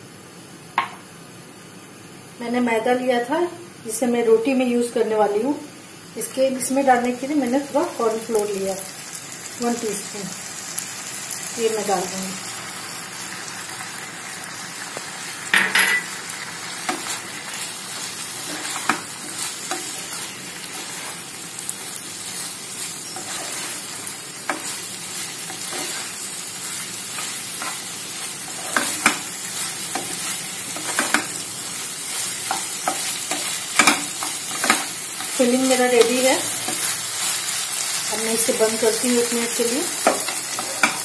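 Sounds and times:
food sizzling in a pan: 0.0s - 41.0s
spatula scraping a pan: 16.8s - 21.4s, 22.2s - 31.4s.

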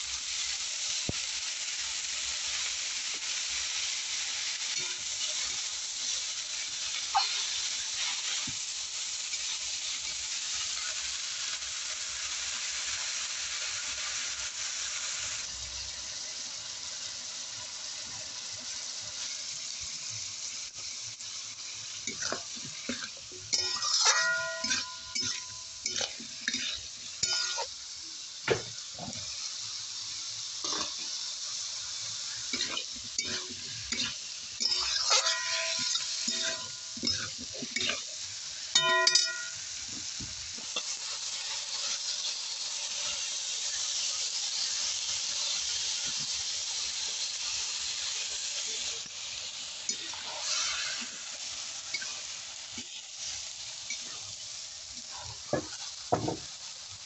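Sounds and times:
vegetables sizzling in hot oil: 0.0s - 57.0s
metal ladle scraping a pan: 22.1s - 27.7s, 30.6s - 31.1s, 32.6s - 38.1s, 49.9s - 51.2s.

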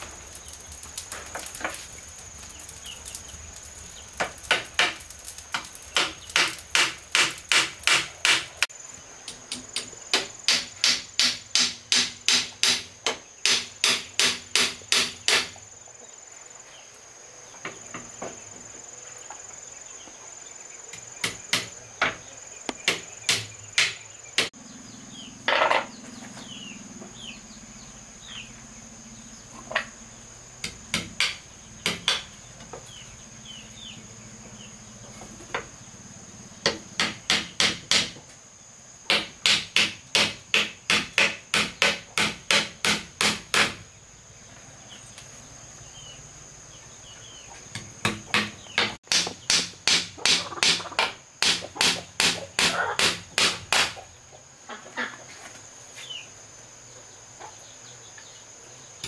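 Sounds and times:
high insect buzz: 0.0s - 59.0s
hammer striking nails into wood: 5.6s - 8.6s, 9.8s - 15.5s, 21.2s - 24.5s, 30.6s - 32.3s, 36.6s - 38.2s, 39.1s - 43.8s, 47.8s - 50.8s, 51.4s - 54.0s.

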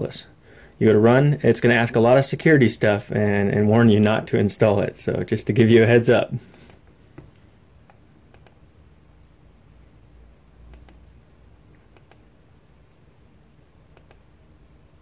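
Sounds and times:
faint computer mouse clicks: 7.8s - 8.6s, 10.7s - 11.0s, 11.7s - 12.2s, 13.9s - 14.3s.

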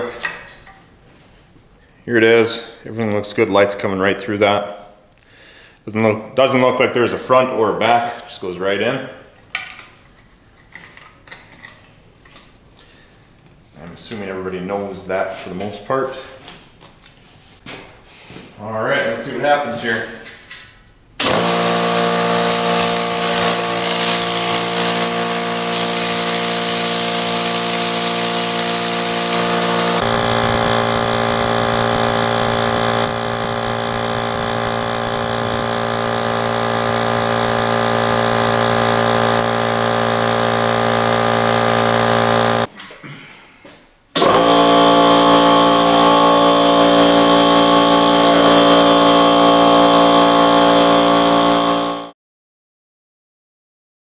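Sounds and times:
strong hiss: 21.2s - 30.0s
air compressor running: 21.2s - 42.7s, 44.2s - 52.2s.

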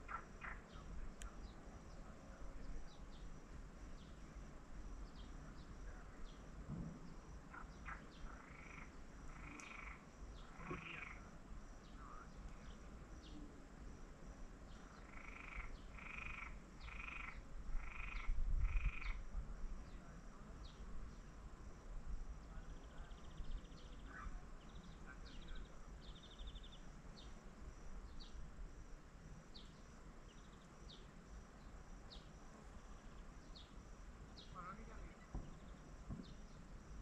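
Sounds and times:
frog croaking: 0.0s - 0.9s, 7.5s - 12.8s, 14.9s - 19.3s.

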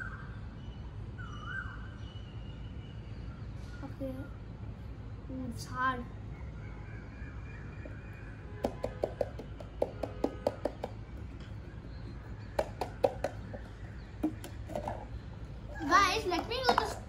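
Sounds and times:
hollow knocks on plastic container: 8.6s - 15.1s.

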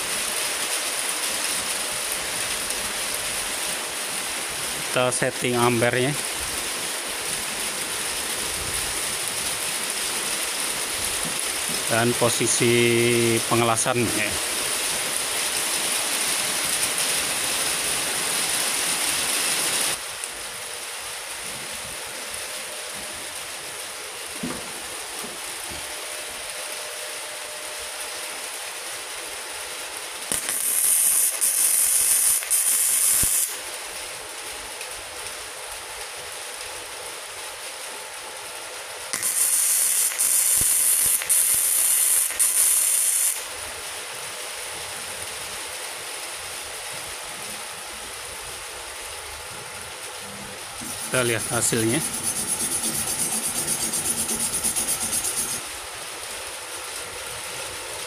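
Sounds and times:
welding arc sizzling: 0.0s - 20.8s, 30.2s - 34.6s, 39.1s - 44.2s, 48.3s - 57.0s
steady hiss: 0.0s - 58.0s.

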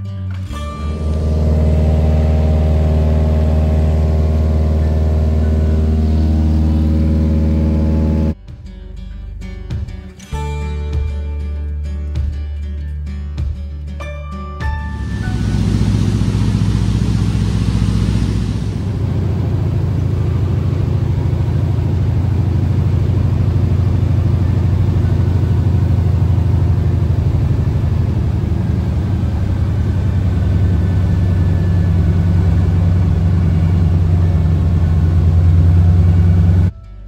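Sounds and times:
plane engine and propeller droning: 0.5s - 8.4s, 14.8s - 36.7s.

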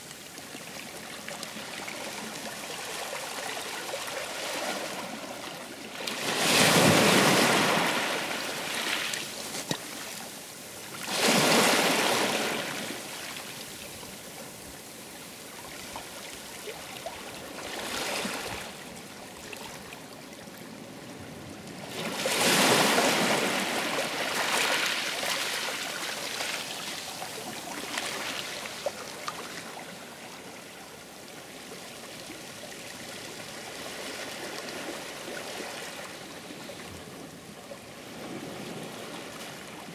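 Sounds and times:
sea waves breaking: 2.9s - 10.0s, 11.0s - 13.4s, 21.9s - 26.7s.

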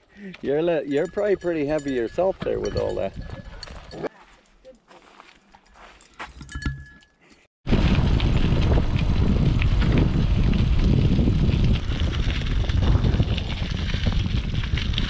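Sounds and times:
tyres clicking on trail: 0.0s - 7.4s
wind buffeting microphone: 1.0s - 4.1s, 7.7s - 15.0s.

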